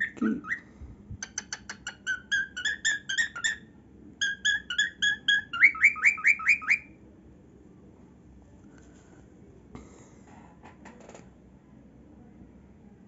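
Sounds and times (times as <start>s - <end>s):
cockatiel singing: 0.0s - 0.6s, 1.2s - 7.0s.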